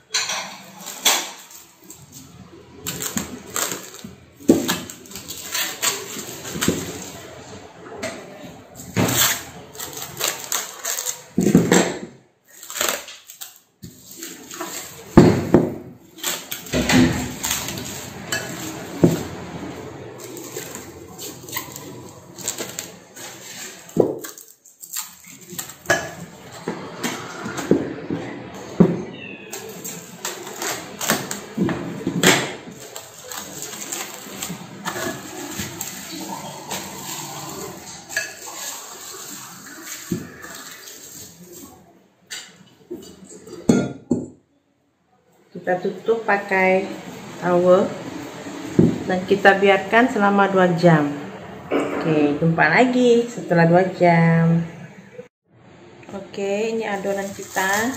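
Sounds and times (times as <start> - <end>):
cling film crinkling: 0.7 - 7.5, 8.8 - 11.5, 12.4 - 15.2, 16.1 - 26.5, 29.5 - 31.6, 32.7 - 41.8, 56.9 - 57.9.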